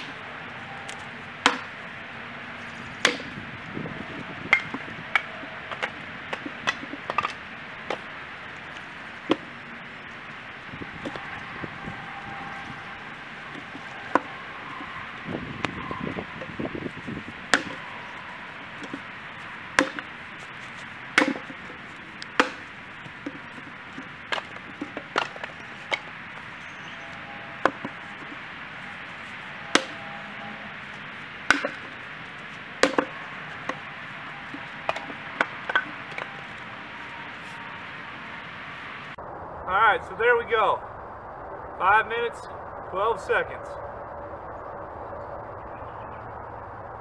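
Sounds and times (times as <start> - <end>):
axe splitting firewood: 0.0 - 0.2, 0.8 - 3.5, 4.3 - 11.3, 12.9 - 14.8, 15.6 - 37.6.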